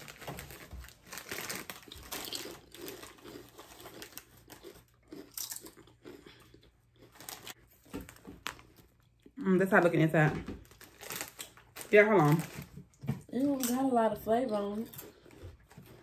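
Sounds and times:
crisp packet crinkling: 0.0 - 5.8, 7.0 - 9.0, 10.6 - 14.0.

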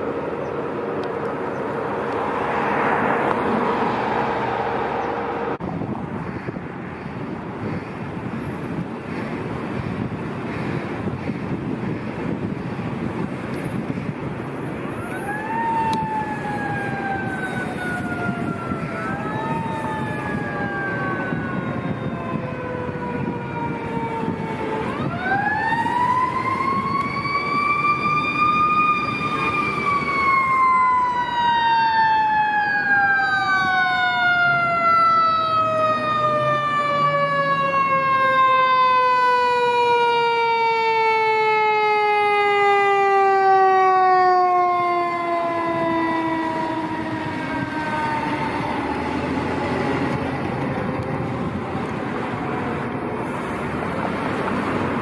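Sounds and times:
fire engine siren wailing: 0.0 - 55.0
traffic noise: 0.0 - 55.0.

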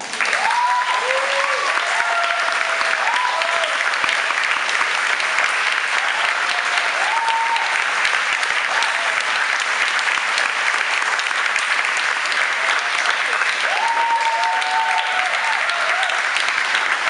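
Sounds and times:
audience applauding: 0.0 - 17.0.

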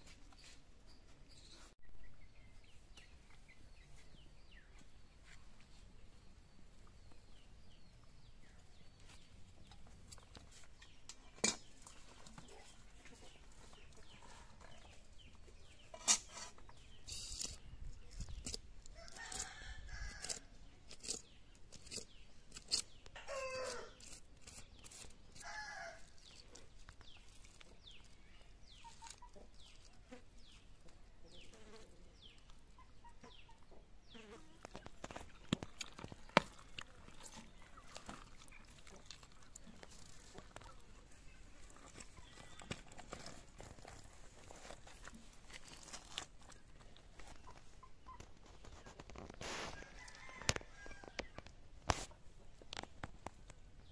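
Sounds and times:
chickens clucking: 9.2 - 17.6, 25.7 - 53.5
rooster crowing: 23.2 - 24.0.

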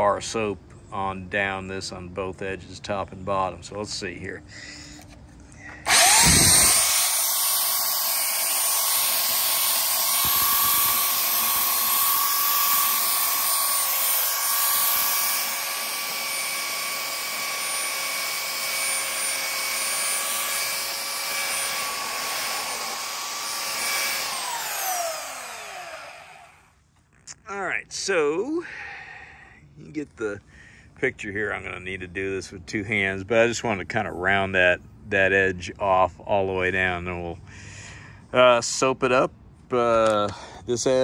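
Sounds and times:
belt sander motor whine: 5.7 - 26.8.

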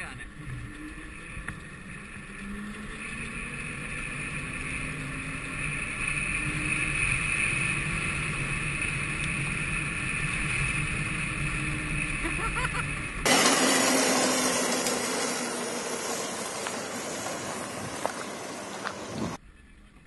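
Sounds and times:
electric motor whine: 0.2 - 12.2, 13.2 - 19.4
tyre and wind noise: 15.3 - 19.4.

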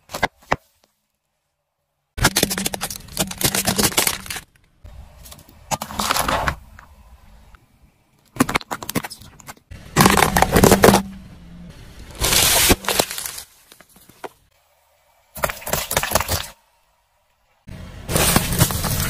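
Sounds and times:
plastic toys cracking under tyre: 2.2 - 4.8, 8.2 - 11.0
fruits crushed under tyre: 9.8 - 11.2, 12.1 - 14.0, 18.0 - 19.0.

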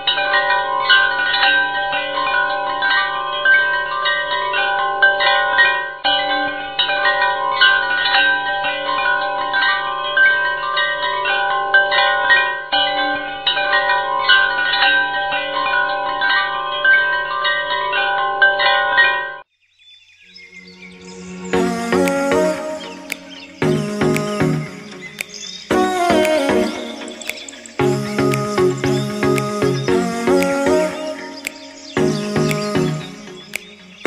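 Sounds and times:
steady low drone: 21.2 - 34.0.

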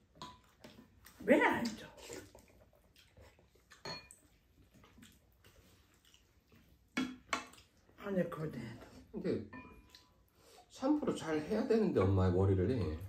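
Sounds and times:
utensils clinking on ceramic bowls: 3.8 - 4.2.

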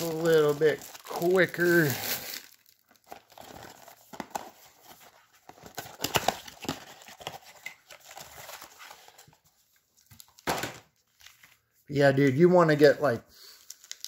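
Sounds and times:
packaging crinkling and tearing: 0.0 - 9.3, 13.5 - 14.0.

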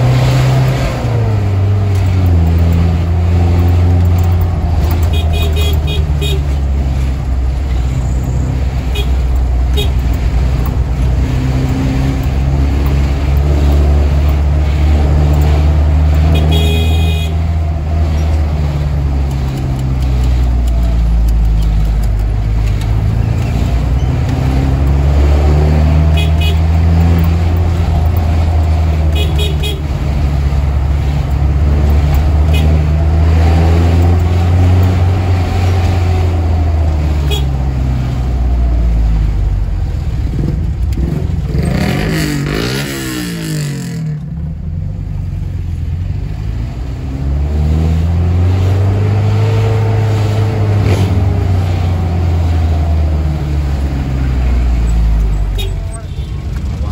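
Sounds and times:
minibus engine accelerating: 0.0 - 56.9
horn tooting: 4.8 - 6.7, 8.8 - 10.1, 16.1 - 17.6, 25.9 - 27.0, 29.0 - 30.0, 32.4 - 33.0, 37.1 - 37.7, 55.3 - 56.5.

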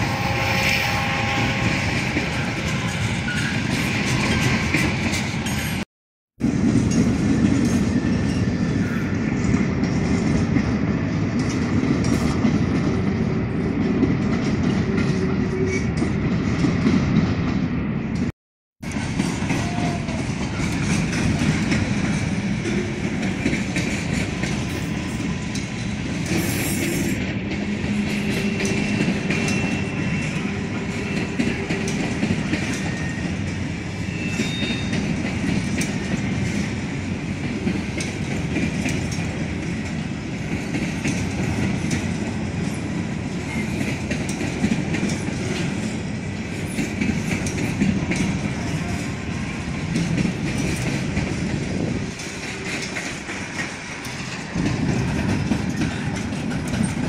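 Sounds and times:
train wheels rumbling on rail: 0.0 - 57.0
faint high wheel squeals: 28.4 - 31.4, 34.0 - 35.0.

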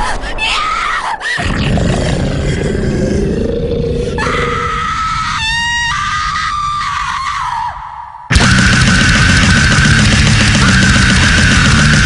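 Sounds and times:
scream-like cry: 0.0 - 12.0
harsh distorted noise: 8.3 - 12.0.

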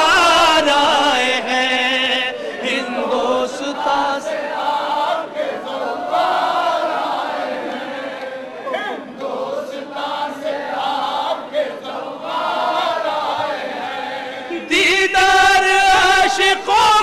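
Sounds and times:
crowd of men chanting in unison: 0.0 - 17.0.

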